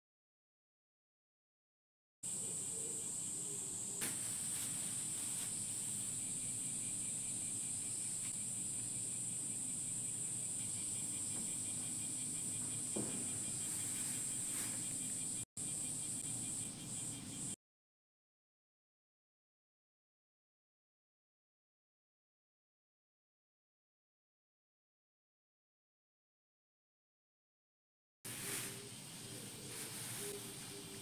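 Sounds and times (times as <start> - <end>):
insects chorus: 2.2 - 17.6, 28.3 - 31.0
light knocks of garden pots: 12.6 - 13.9.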